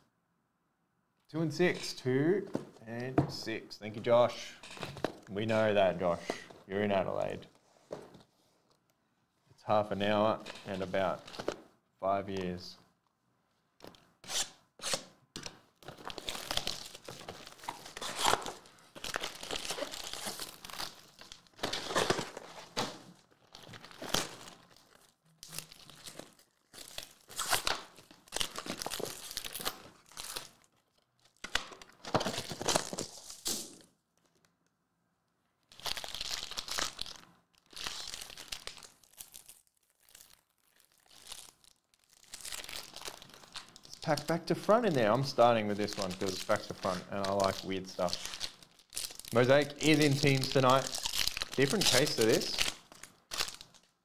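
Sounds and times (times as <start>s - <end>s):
plastic wrap tearing and crinkling: 13.9s - 34.4s, 35.6s - 54.0s
card packs rustling: 15.4s - 30.7s, 31.3s - 33.4s, 42.2s - 53.8s.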